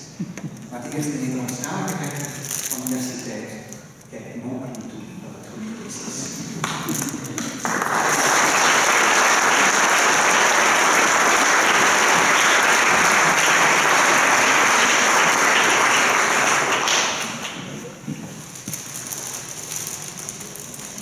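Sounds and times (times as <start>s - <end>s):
audience applauding: 6.6s - 17.8s.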